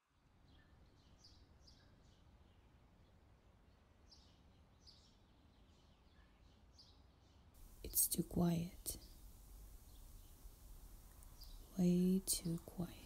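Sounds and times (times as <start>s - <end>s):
low outdoor hush: 7.6s - 13.0s
high bird chirps: 7.8s - 13.0s.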